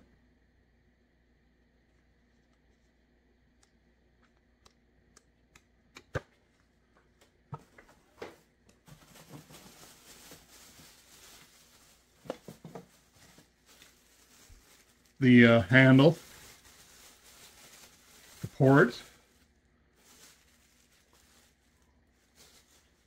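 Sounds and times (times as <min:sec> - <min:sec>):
plastic bag crinkling: 0:08.8 - 0:23.0.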